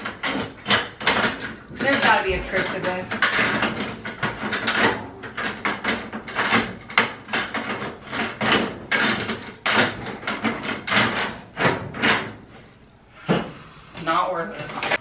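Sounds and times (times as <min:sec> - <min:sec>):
plastic drawer clattering: 0:00.0 - 0:12.4.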